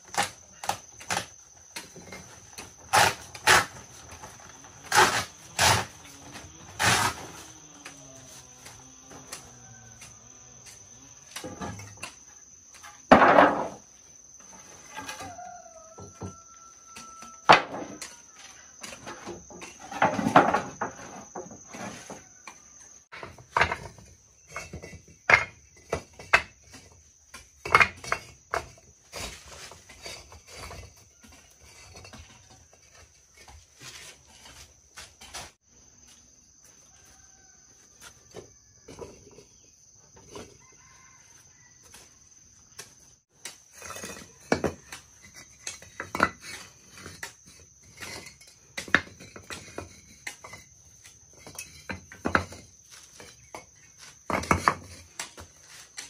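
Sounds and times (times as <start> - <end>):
sharp knocks and clatter: 42.8 - 56.0.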